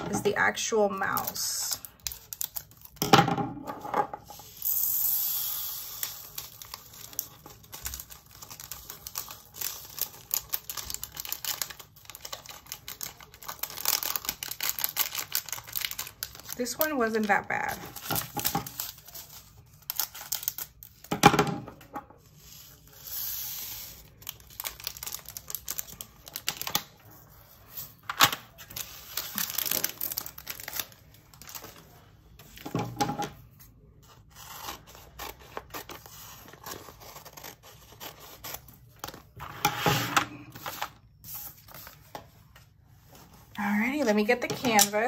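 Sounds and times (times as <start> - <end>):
plastic bags rustling: 28.5 - 32.1.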